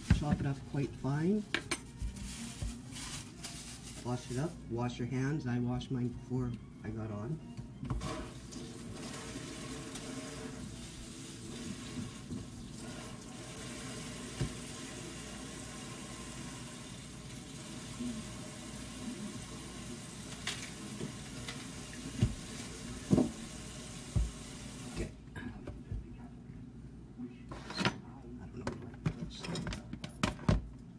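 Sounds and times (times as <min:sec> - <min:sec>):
tap running into sink: 0:14.3 - 0:14.7, 0:20.4 - 0:24.6.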